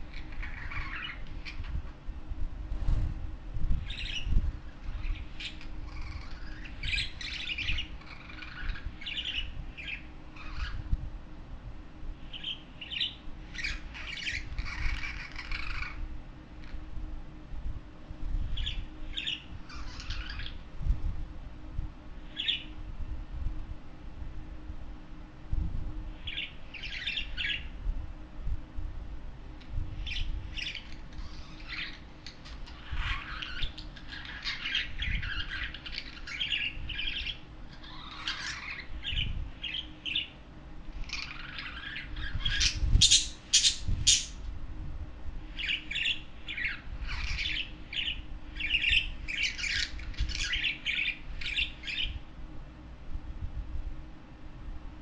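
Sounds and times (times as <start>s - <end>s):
budgerigars chirping and squawking: 0.0s - 1.8s, 3.8s - 10.9s, 12.3s - 16.0s, 18.6s - 20.6s, 26.3s - 27.7s, 30.0s - 40.4s, 41.0s - 44.4s, 45.6s - 52.2s.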